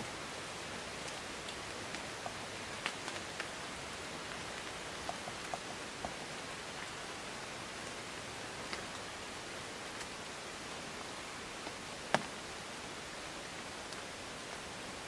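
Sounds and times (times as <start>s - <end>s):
light rain hiss: 0.0s - 15.0s.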